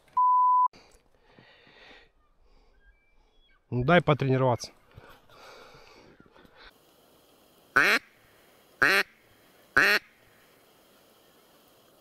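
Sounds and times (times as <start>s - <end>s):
duck call quacks: 7.8s - 8.1s, 8.8s - 9.1s, 9.8s - 10.1s.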